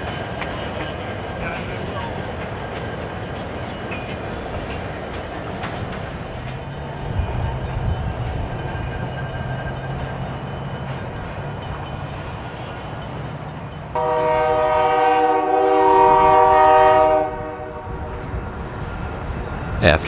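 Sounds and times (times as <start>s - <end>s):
diesel locomotive engine running: 0.0s - 20.0s
locomotive air horn: 14.0s - 18.2s.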